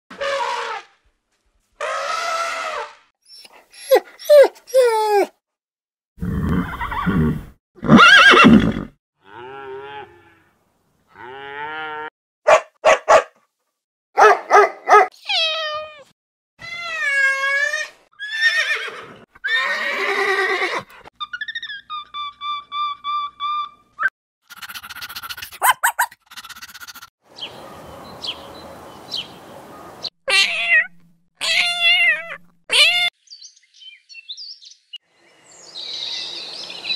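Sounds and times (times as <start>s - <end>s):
elephant trumpeting: 0.1s - 0.9s, 1.8s - 3.0s
cat meowing: 30.3s - 33.1s.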